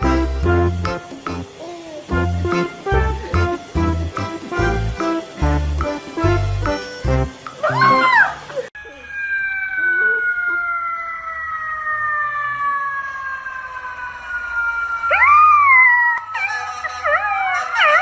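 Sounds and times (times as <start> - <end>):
siren falling tone: 7.6 - 18.0
puppy howling: 7.7 - 10.8, 15.1 - 18.0.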